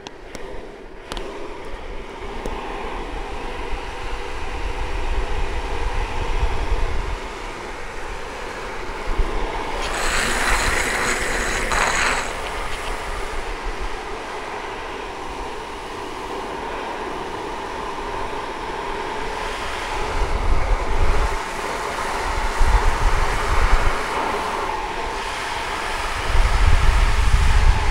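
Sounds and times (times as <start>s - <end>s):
wind noise on microphone: 0.0s - 27.9s
longboard wheels rolling on asphalt: 7.3s - 14.5s
hissing wheel slide with whine: 8.6s - 14.0s.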